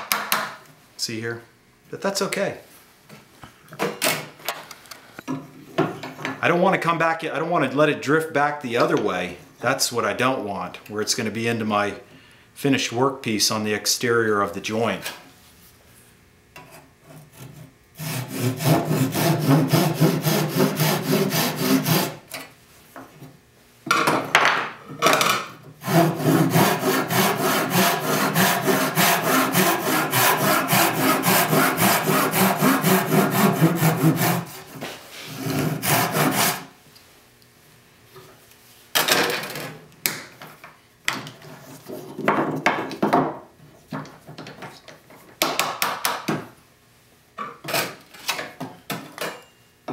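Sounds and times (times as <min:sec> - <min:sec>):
hand saw strokes in wood: 0:17.1 - 0:22.2, 0:25.8 - 0:36.7.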